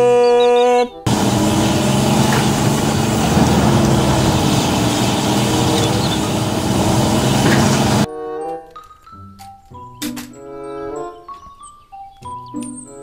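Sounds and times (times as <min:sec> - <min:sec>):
excavator diesel engine running: 0:01.1 - 0:08.1.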